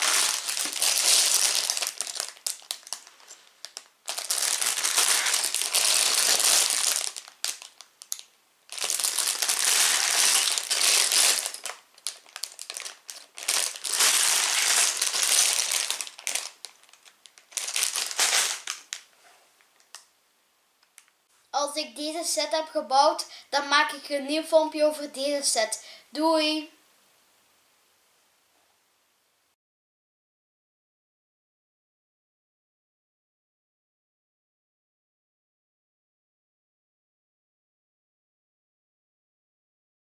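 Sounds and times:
plastic bags crinkling: 0.0 - 19.1, 19.7 - 20.0.

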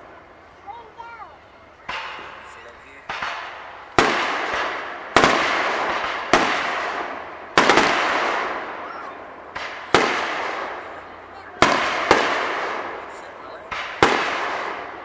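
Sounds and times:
firework shells bursting: 1.7 - 15.0.

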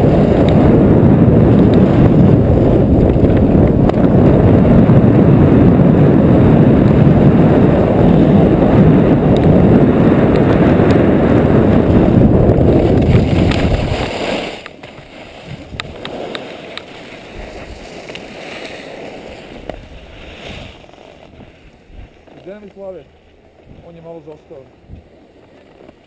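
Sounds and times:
wind buffeting microphone: 0.0 - 18.4, 19.0 - 25.2
skis hissing over snow: 10.2 - 26.0.

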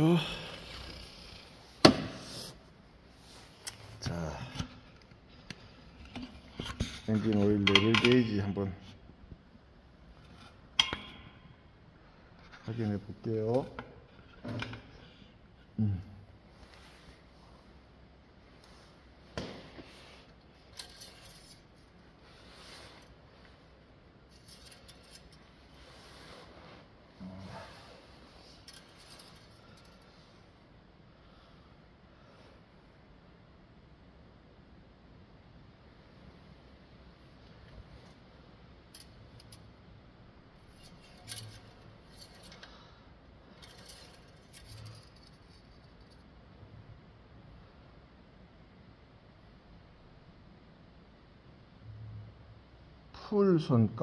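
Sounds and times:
dipstick sliding and rubbing: 24.3 - 29.6.

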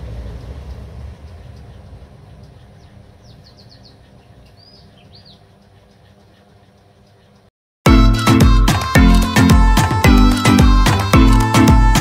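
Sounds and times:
small bird chirping: 1.3 - 7.4.

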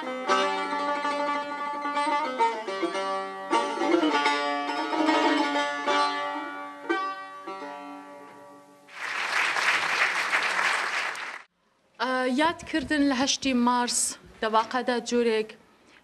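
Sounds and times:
plucked lute notes: 0.0 - 8.8
audience applause: 8.9 - 11.5.

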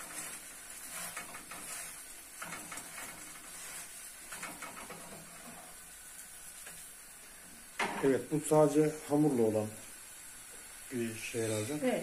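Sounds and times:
spatula scraping and tapping pan: 0.0 - 5.8.

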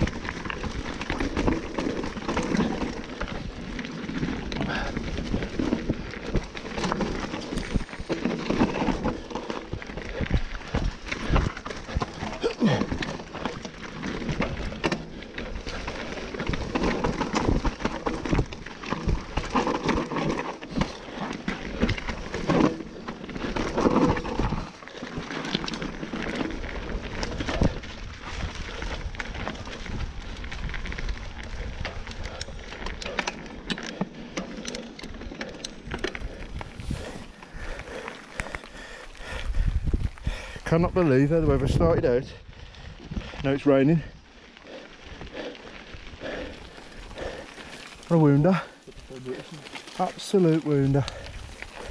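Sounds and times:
tyres crunching on stones: 0.0 - 42.2, 43.1 - 51.9
bike rattling and knocking: 0.0 - 51.9
wind rumble on microphone: 25.5 - 33.2, 35.9 - 44.3.

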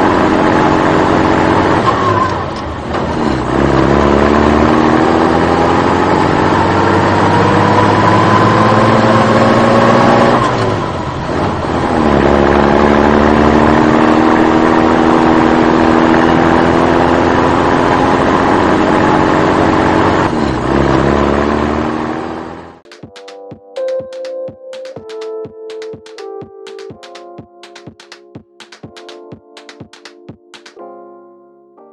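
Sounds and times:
engine revving: 0.0 - 22.8.

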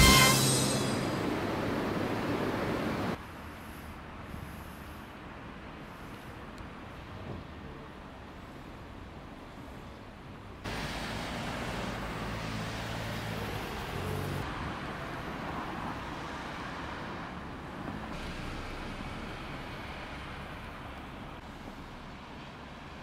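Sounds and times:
cars passing on street: 0.0 - 23.0
vehicle engine low hum: 5.5 - 23.0.

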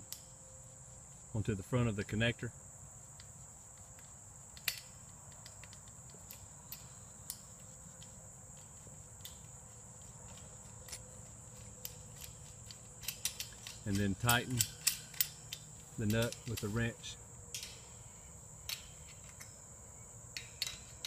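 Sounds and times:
crickets trilling: 0.0 - 21.0
metallic clicks of nut on bolt: 4.6 - 7.5, 11.8 - 16.8, 17.5 - 17.8, 18.6 - 19.6, 20.3 - 21.0.

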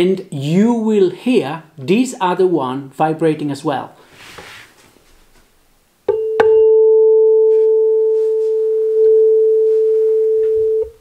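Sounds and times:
tuning fork struck with mallet: 6.1 - 7.6
tuning fork ringing pure tone: 6.1 - 10.9.

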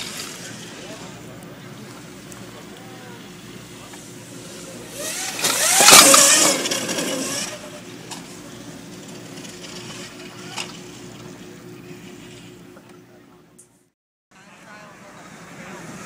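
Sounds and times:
electric dirt bike passing: 0.0 - 12.8.

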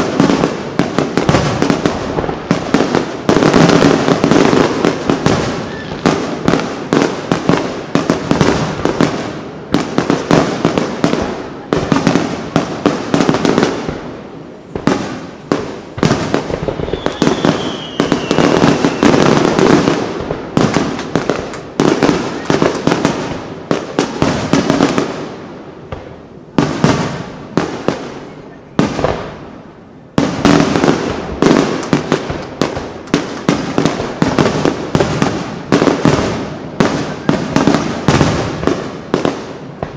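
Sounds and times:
firework shells bursting: 15.9 - 23.4.

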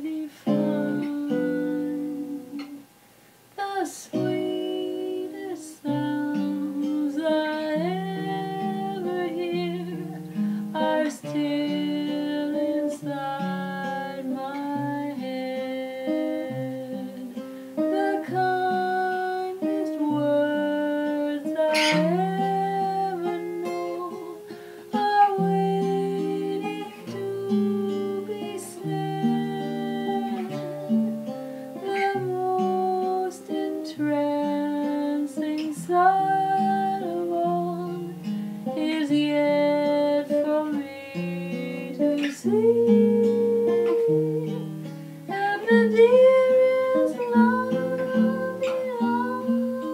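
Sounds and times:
guitar melody over chords: 0.0 - 2.9, 4.1 - 49.9.

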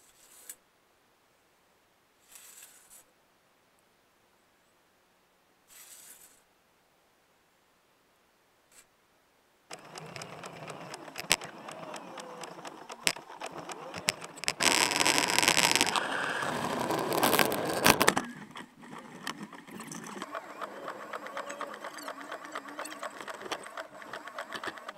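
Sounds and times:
plow rushing through snow: 9.7 - 24.9
rapid rattling and clicking: 9.7 - 24.9.

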